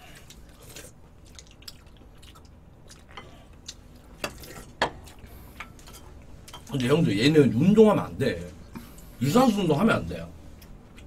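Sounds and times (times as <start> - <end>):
quiet chewing: 0.0 - 6.7.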